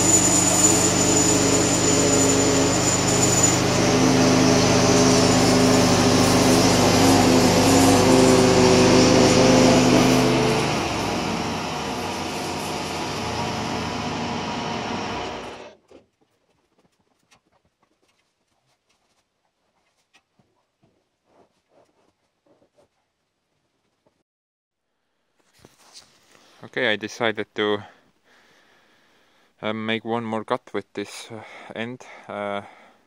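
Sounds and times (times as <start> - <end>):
blade sawing through log: 0.0 - 15.7
sawmill engine running: 0.0 - 15.8.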